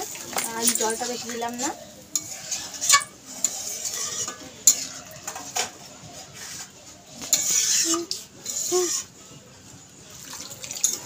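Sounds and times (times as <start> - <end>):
metal spatula scraping pan: 0.3 - 9.2
spatula clinking against pan: 2.1 - 5.4.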